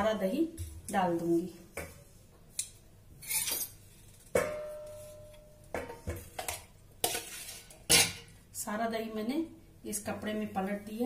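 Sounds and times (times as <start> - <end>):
sharp ringing metal clang: 4.4 - 5.6.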